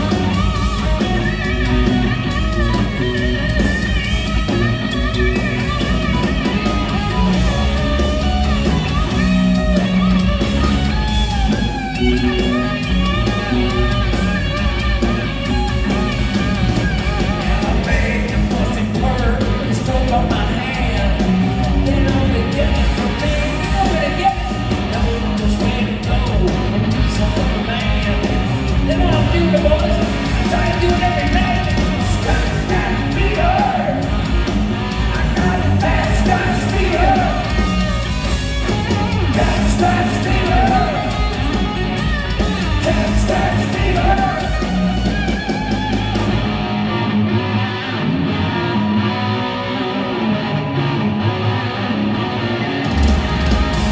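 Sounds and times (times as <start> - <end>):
drum kit: 0.0 - 46.8, 52.8 - 53.9
electric bass: 0.0 - 53.9
electric guitar: 0.0 - 53.9
person singing lead vocal: 17.3 - 34.2, 35.1 - 37.8, 39.3 - 41.4, 42.7 - 44.8.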